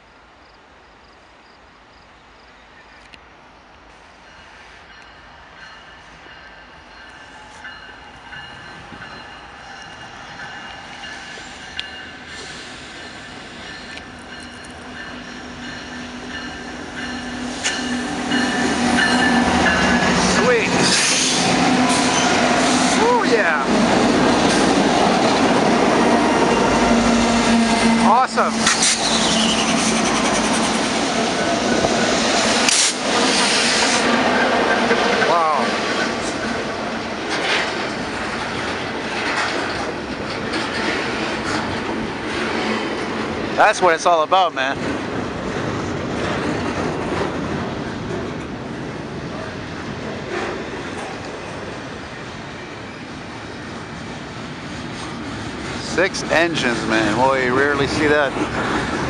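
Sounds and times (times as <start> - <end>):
diesel freight train approaching: 1.9 - 59.0
locomotive engine drone: 7.2 - 42.3.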